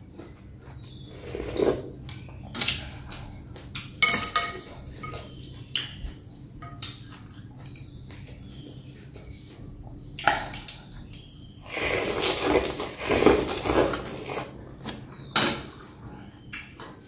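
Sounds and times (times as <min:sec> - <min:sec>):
person slurping noodles: 0:01.1 - 0:02.0, 0:11.7 - 0:14.6.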